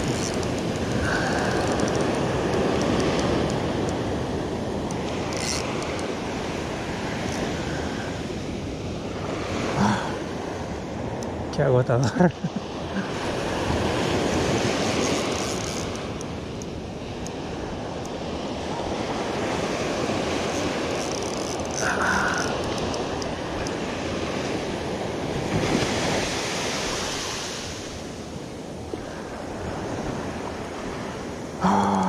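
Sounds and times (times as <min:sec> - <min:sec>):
wind on microphone: 0:00.0 - 0:11.5, 0:12.7 - 0:32.0
ocean surf washing ashore: 0:00.0 - 0:32.0.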